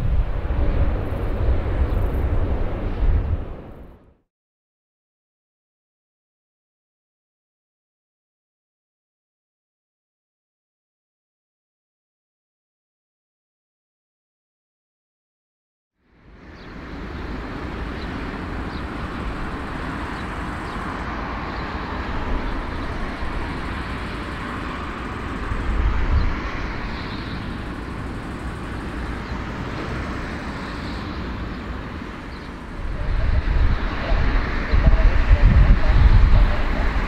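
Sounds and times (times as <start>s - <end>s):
jet engines running: 0.0s - 4.1s, 16.1s - 37.0s.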